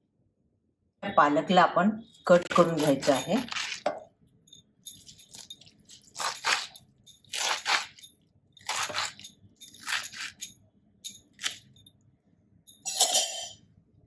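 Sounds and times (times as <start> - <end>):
knife chopping on wooden board: 2.5 - 4.0, 5.3 - 8.0, 8.6 - 9.2.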